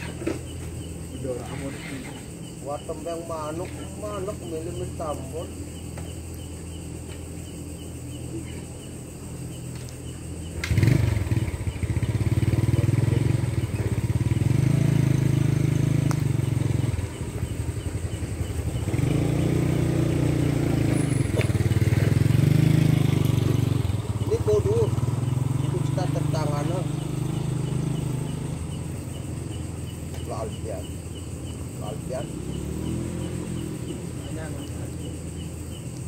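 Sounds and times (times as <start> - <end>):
small engine running: 10.6 - 29.9.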